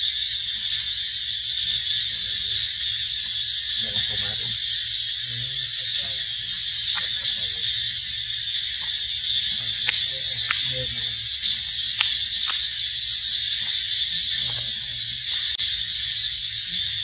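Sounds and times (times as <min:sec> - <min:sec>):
high-pitched insect chorus: 0:00.0 - 0:17.0
sharp clicks: 0:09.6 - 0:12.7.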